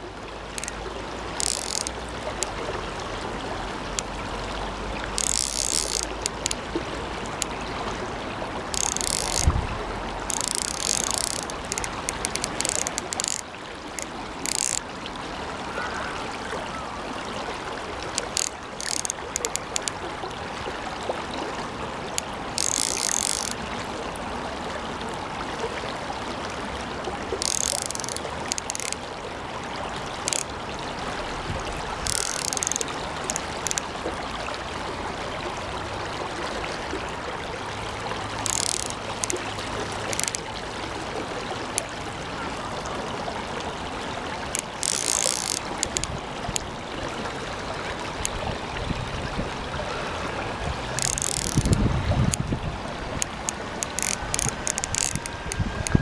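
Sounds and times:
stream rushing: 0.0s - 56.0s
fly reel ratchet clicking: 0.5s - 2.6s, 5.1s - 6.7s, 8.7s - 9.6s, 10.2s - 14.9s, 18.1s - 20.0s, 22.2s - 23.6s, 27.4s - 29.0s, 30.2s - 30.5s, 32.0s - 33.9s, 38.4s - 40.5s, 44.5s - 46.7s, 50.9s - 52.4s, 53.2s - 56.0s.

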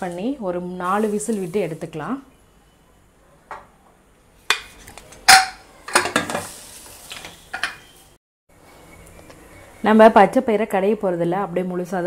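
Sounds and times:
pressure cooker lid clanking: 5.3s - 6.3s.

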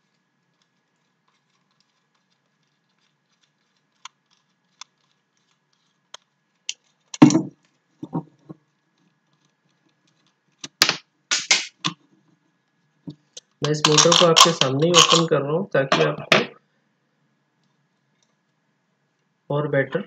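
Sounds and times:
sharp clicks and clatter: 0.0s - 12.0s, 13.1s - 15.3s
knocks: 7.2s - 8.2s.

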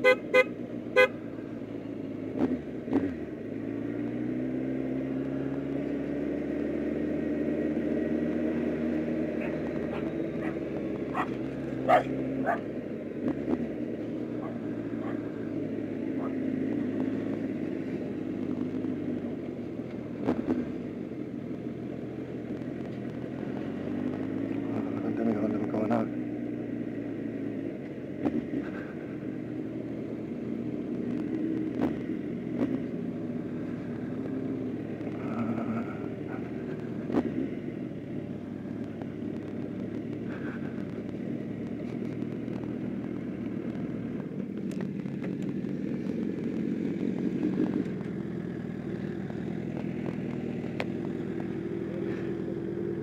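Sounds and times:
motorcycle engine running: 0.0s - 53.0s.

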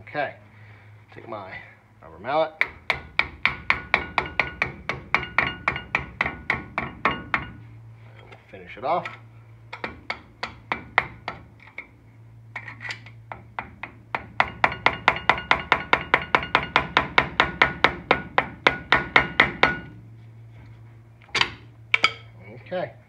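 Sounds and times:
rubber mallet tapping metal: 2.6s - 7.6s, 13.3s - 19.9s
low hum: 3.1s - 23.0s.

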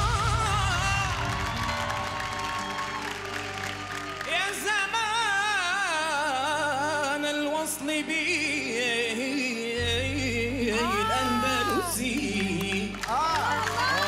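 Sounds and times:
man singing ornamented notes: 4.3s - 14.0s.

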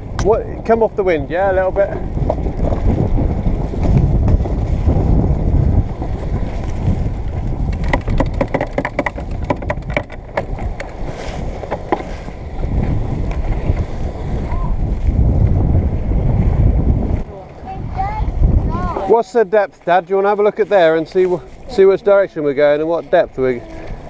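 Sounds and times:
water rushing along hull: 0.0s - 24.0s
wind buffeting microphone: 0.0s - 24.0s
sharp clicks and knocks: 7.7s - 11.0s.

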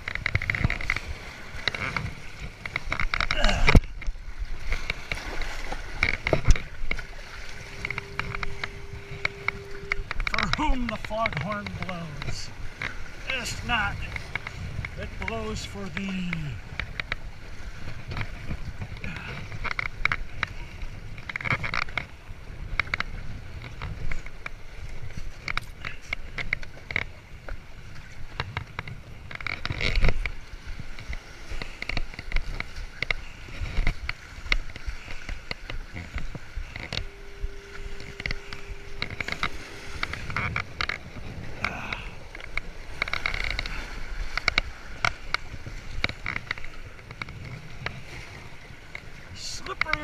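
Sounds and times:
waves rumbling: 0.0s - 50.0s
wind on microphone: 0.0s - 50.0s
faint steady tone: 6.0s - 17.1s, 34.8s - 45.5s.

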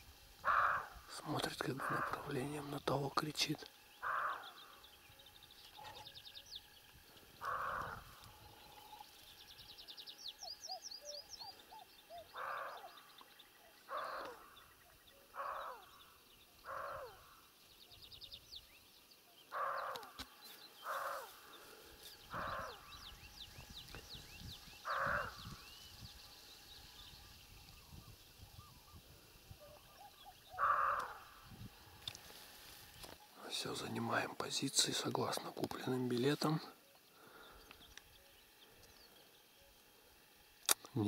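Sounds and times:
small birds singing: 0.0s - 41.0s
deer barking: 13.9s - 14.4s, 19.5s - 20.1s.

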